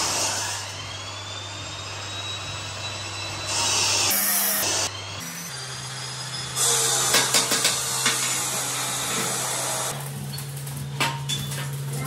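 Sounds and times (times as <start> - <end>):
arc welding crackling hiss: 6.6 - 12.0.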